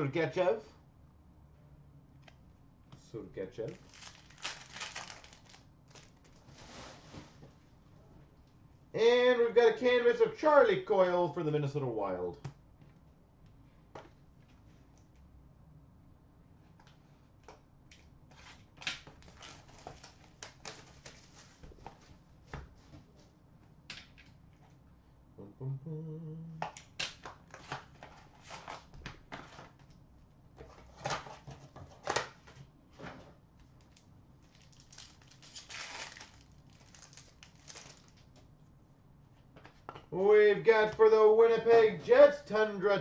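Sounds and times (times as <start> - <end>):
wrapper crinkling: 3.7 - 6.7, 33.8 - 38.4.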